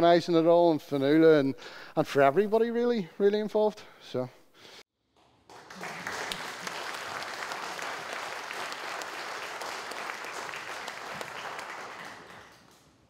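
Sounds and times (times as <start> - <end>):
audience clapping: 5.2 - 13.0.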